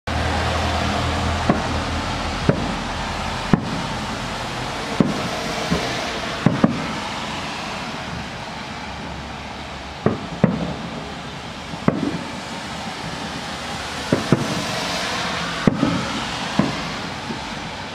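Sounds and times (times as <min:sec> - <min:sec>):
steady background hiss: 0:00.4 - 0:17.9
distant firework bangs: 0:01.0 - 0:08.4, 0:10.0 - 0:17.8.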